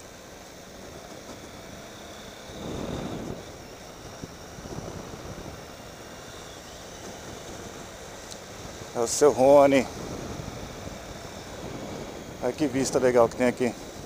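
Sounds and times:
motorcycle engine running: 0:00.0 - 0:14.0
wind noise on microphone: 0:02.4 - 0:14.0.

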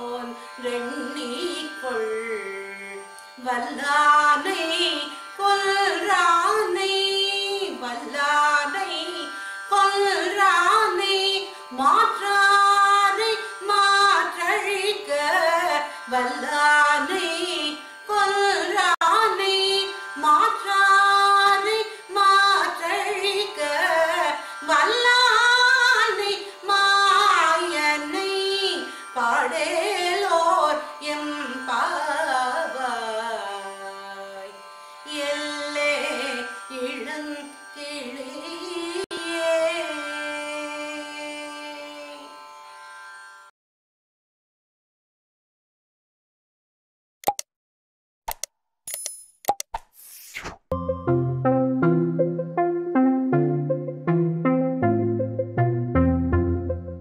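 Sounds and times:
woman singing: 0:00.0 - 0:42.4.

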